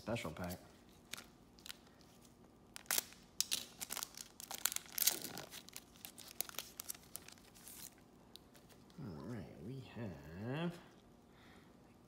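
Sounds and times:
card pack wrapper tearing: 2.7s - 8.5s.

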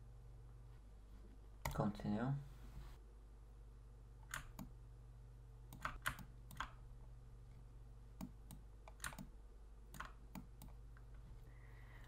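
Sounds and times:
steady low hum: 0.0s - 12.0s
keyboard and mouse clicking: 4.2s - 4.7s, 5.7s - 6.8s, 8.2s - 9.3s, 9.9s - 11.2s.

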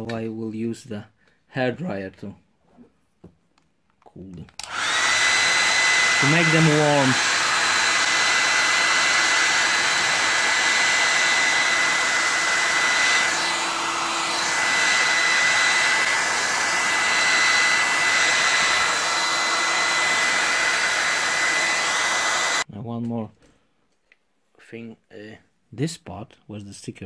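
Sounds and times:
hair dryer running: 4.6s - 22.7s.

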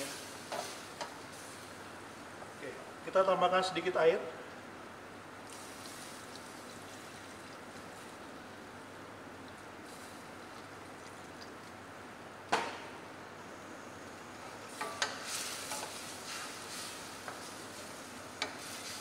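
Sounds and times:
chicken sizzling in a saucepan: 14.6s - 19.0s.

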